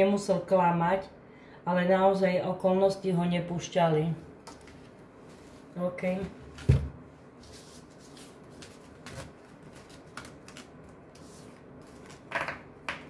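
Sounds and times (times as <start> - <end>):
cards sliding and rustling: 7.4 - 12.3.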